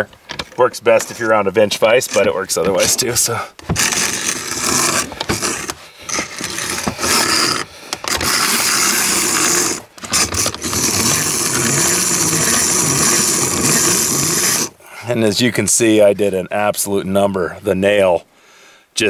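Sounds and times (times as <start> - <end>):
grinding wheel grinding metal: 3.6 - 14.8.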